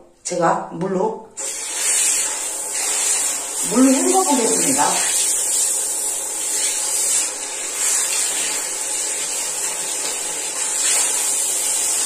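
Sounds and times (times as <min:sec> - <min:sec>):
water spraying onto hair: 0:01.4 - 0:12.0.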